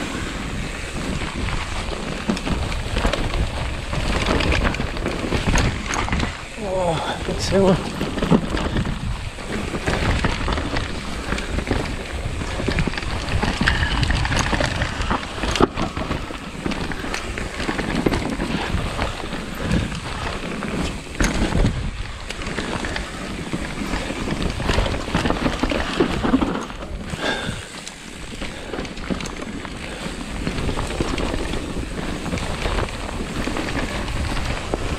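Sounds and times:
bike tyres running over dirt: 0:00.0 - 0:34.9
wind buffeting microphone: 0:00.0 - 0:34.9.

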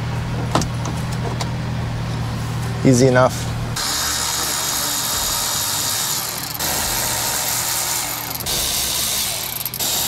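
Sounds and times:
electric ratchet motor whir: 0:03.8 - 0:10.0.

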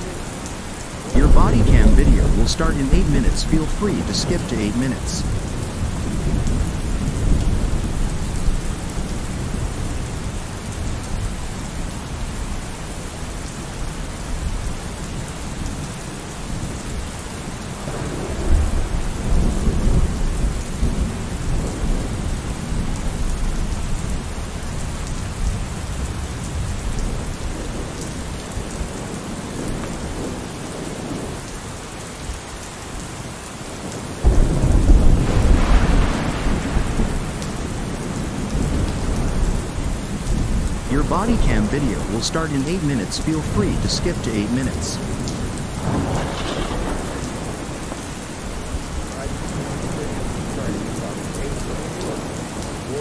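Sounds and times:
steady rain: 0:00.0 - 0:53.0
low rolling thunder: 0:01.1 - 0:03.4, 0:05.2 - 0:11.8, 0:34.2 - 0:40.9, 0:45.0 - 0:52.9.

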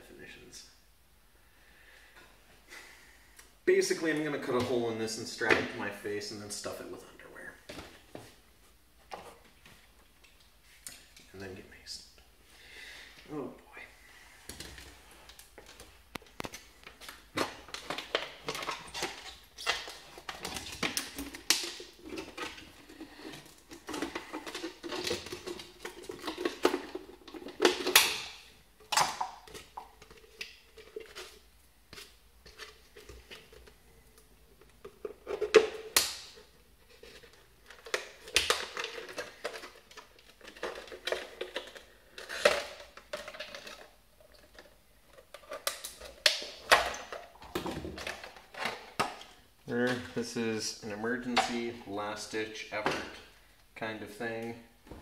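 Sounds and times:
sharp plastic cracks: 0:19.6 - 0:21.9, 0:35.6 - 0:36.4.

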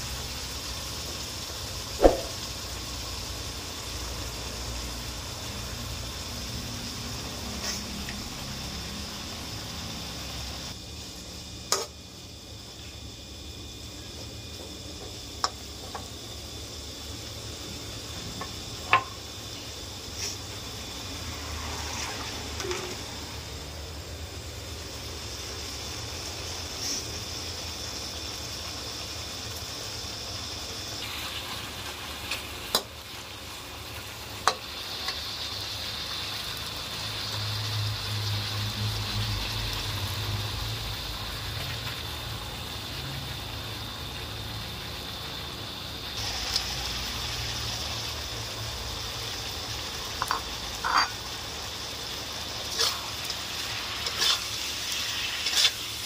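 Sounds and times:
meat sizzling in hot oil: 0:00.0 - 0:56.0.

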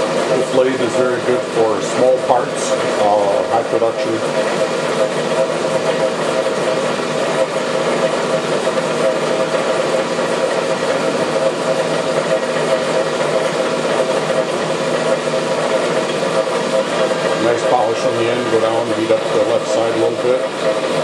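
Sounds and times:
machine hum: 0:00.0 - 0:21.0
burner flame hissing: 0:15.8 - 0:20.4.

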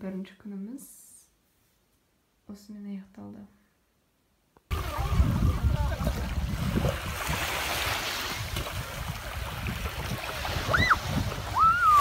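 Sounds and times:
lake waves lapping at shoreline: 0:04.7 - 0:12.0
wind rumbling on microphone: 0:04.7 - 0:12.0.

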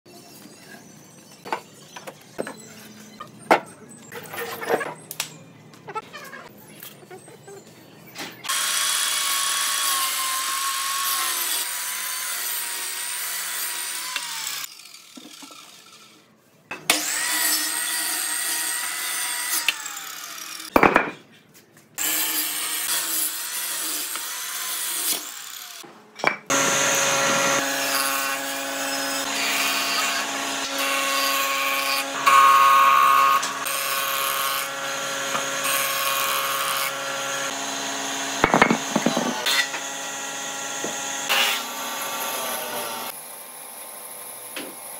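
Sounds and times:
miter saw cutting wood: 0:08.5 - 0:16.2, 0:16.9 - 0:20.7, 0:26.5 - 0:44.9.

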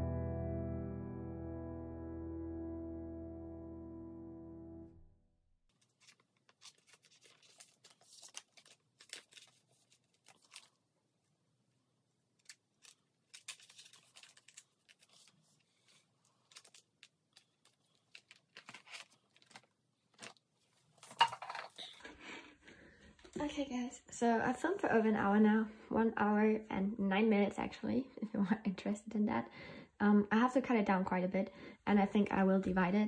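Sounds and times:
plastic sleeves crinkling: 0:05.7 - 0:11.0, 0:12.3 - 0:21.9.

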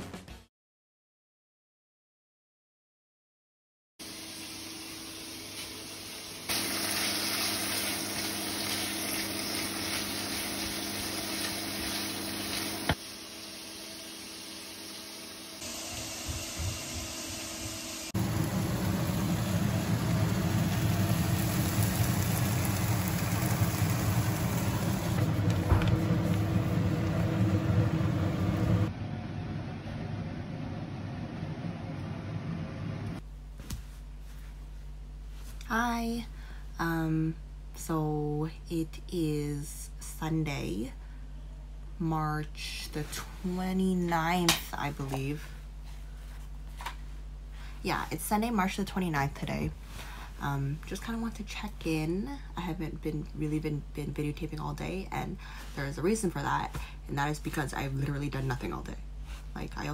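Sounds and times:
loud deep cooking noise: 0:04.0 - 0:15.6, 0:18.1 - 0:33.0
low hum: 0:06.2 - 0:39.2.

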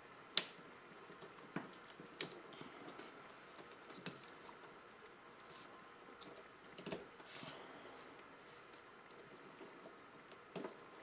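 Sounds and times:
faint sharp plastic clicks: 0:00.3 - 0:04.6.

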